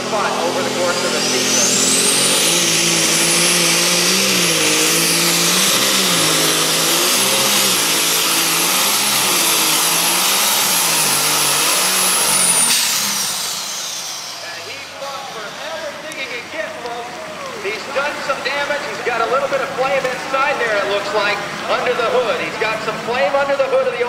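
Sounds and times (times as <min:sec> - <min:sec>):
high engine whine: 0:00.0 - 0:24.0
tractor engine at full throttle: 0:00.0 - 0:24.0.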